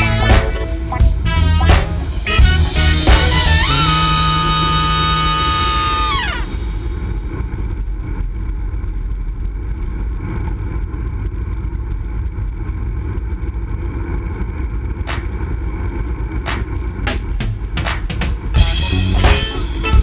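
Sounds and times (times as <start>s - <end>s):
sharp crack: 15.1s - 18.6s.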